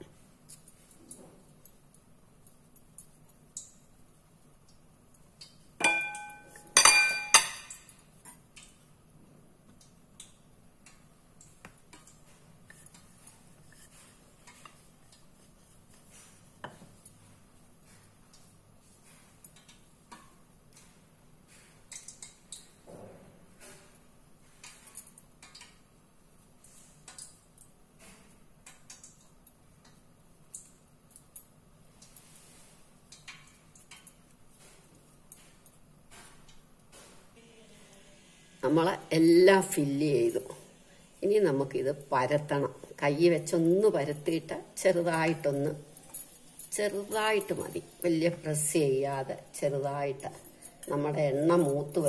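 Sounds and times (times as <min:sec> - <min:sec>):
hands pleating dough: 0:11.0 - 0:22.0.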